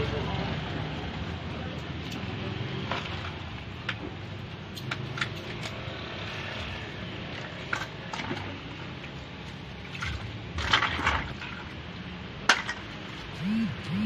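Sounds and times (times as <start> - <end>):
low background hum: 13.4 - 14.0.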